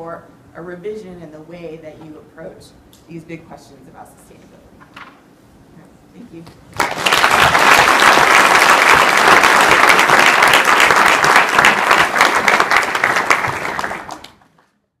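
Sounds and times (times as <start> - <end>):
audience applauding: 6.8 - 14.7.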